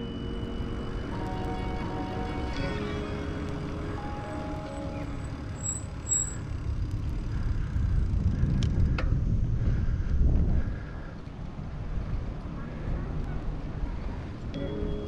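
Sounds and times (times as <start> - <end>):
background music with held notes: 0.0 - 6.1, 14.6 - 15.0
wind noise on microphone: 6.4 - 14.6.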